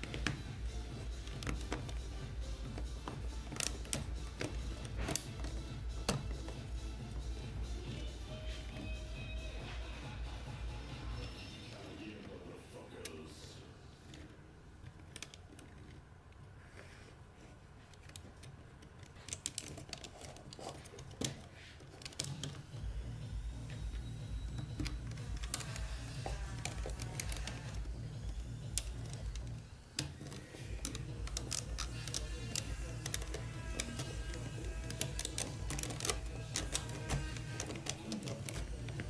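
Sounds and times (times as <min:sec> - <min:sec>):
plastic parts clicking and knocking: 0:00.0 - 0:09.0, 0:14.0 - 0:39.0
background music with low beat: 0:00.0 - 0:12.2, 0:21.1 - 0:39.0.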